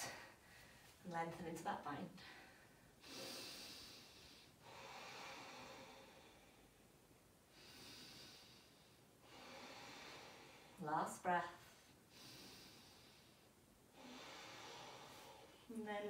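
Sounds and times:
person breathing slowly: 0:02.2 - 0:06.9, 0:07.5 - 0:10.8, 0:11.8 - 0:15.7.

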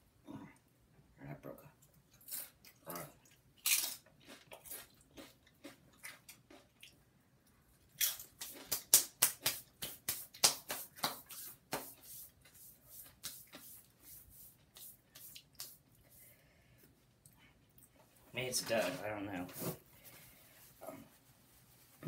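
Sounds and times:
chip crunching between teeth: 0:02.1 - 0:07.0, 0:07.9 - 0:09.6.

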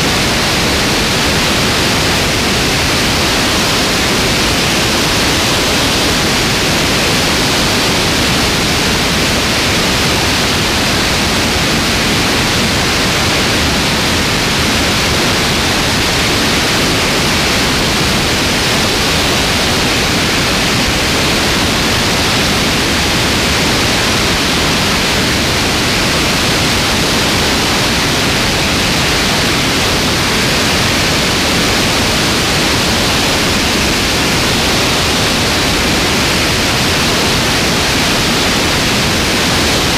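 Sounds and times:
loud rush of airflow: 0:00.0 - 0:39.9.

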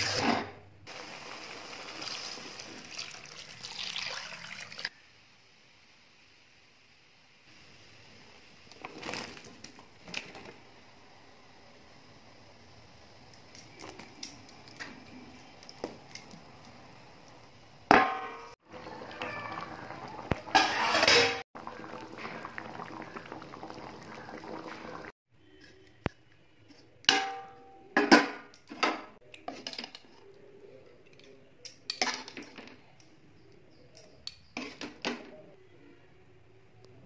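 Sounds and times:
metal spoon scraping metal pan: 0:20.5 - 0:21.4.

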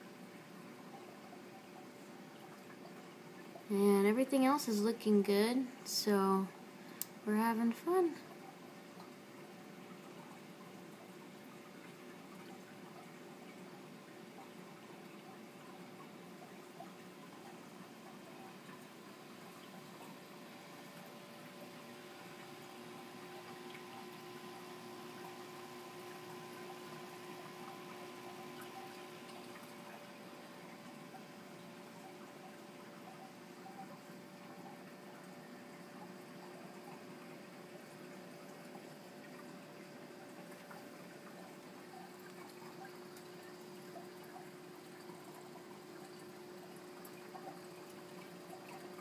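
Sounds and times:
low equipment hum: 0:00.0 - 0:49.0
water trickling: 0:00.0 - 0:49.0.

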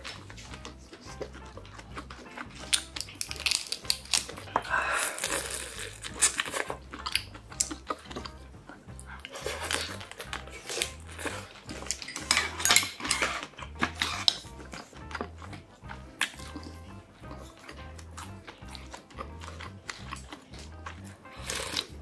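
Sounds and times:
chewing and lip smacking: 0:00.0 - 0:22.0
chopsticks clicking on ceramic bowls: 0:09.2 - 0:16.8.

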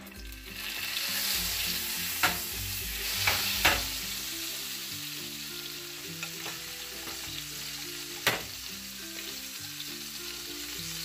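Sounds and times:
butter sizzling in a frying pan: 0:00.0 - 0:11.0
sharp knocks against a pan: 0:02.2 - 0:02.5, 0:03.2 - 0:03.9, 0:08.2 - 0:08.6.

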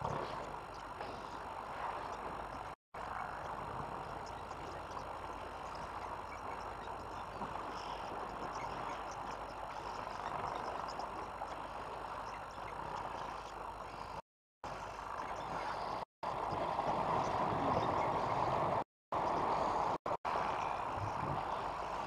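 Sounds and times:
faint scattered ticks: 0:00.0 - 0:14.2.

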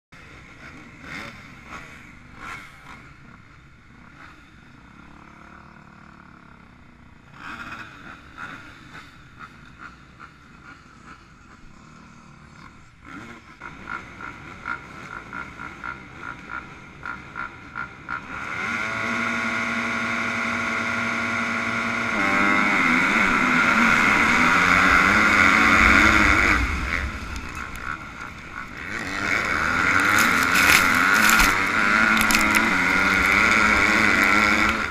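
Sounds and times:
motocross bikes idling: 0:00.2 - 0:18.6, 0:19.8 - 0:34.9
motorcycle engine revving: 0:00.2 - 0:34.9
pack of motorcycle engines: 0:00.2 - 0:34.9
engine throttle blips: 0:12.3 - 0:34.9.

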